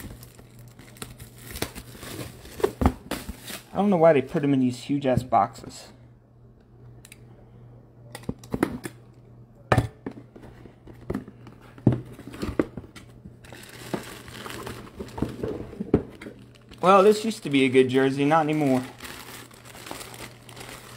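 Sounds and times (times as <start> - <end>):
plastic wrapping crinkling: 0.0 - 3.8, 13.4 - 15.5, 16.2 - 20.9
steady low hum: 0.0 - 20.9.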